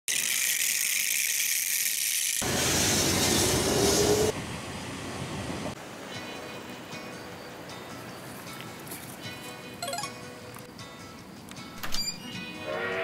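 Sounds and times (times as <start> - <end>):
train rumbling on rails: 2.4 - 6.4
faint outdoor ambience: 2.5 - 13.0.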